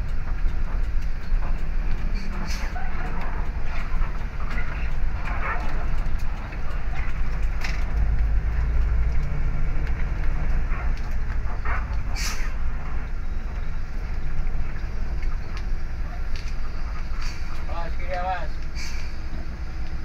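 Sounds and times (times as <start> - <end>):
bus diesel engine rumbling: 0.0 - 20.0
short hiss: 12.2 - 12.6, 18.8 - 19.2.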